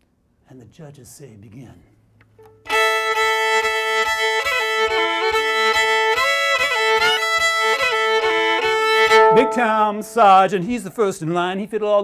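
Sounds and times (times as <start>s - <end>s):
solo fiddle playing a quick tune: 2.4s - 10.7s.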